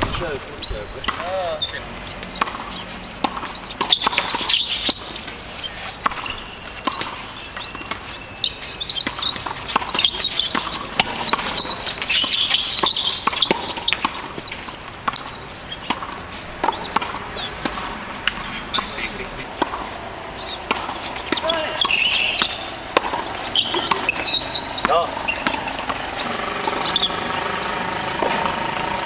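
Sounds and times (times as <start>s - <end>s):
shoe squeaks: 0.6s - 27.6s
tennis ball pops: 2.4s - 5.4s, 9.0s - 18.9s, 20.6s - 24.2s, 28.2s - 28.5s.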